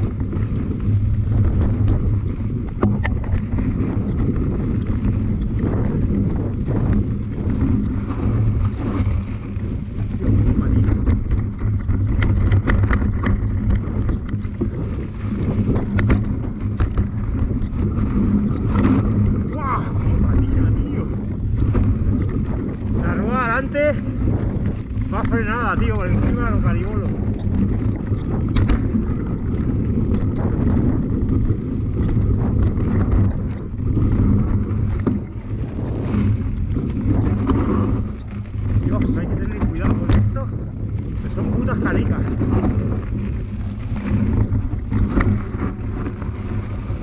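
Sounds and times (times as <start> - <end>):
bike rattling knocks: 0.0 - 47.0
bike rumbling on dirt trail: 0.0 - 47.0
wind on microphone: 0.0 - 47.0.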